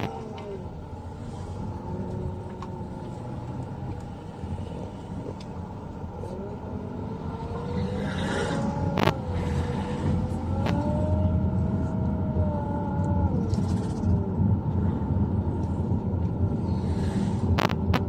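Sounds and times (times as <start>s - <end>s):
car engine and road noise: 0.0s - 18.0s
faint whine: 0.0s - 18.0s.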